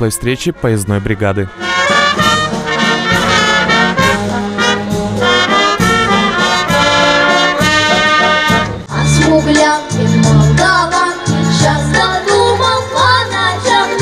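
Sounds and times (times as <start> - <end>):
brass band playing dance tune: 0.0 - 9.9.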